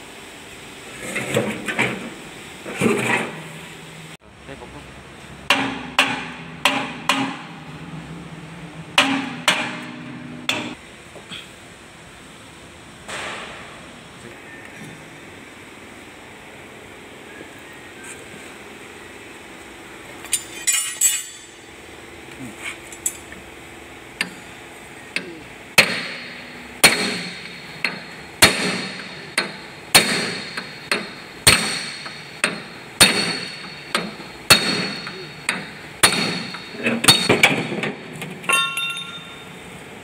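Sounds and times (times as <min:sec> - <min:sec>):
hammer striking metal: 0:05.5 - 0:07.8, 0:08.9 - 0:10.8, 0:25.2 - 0:39.5.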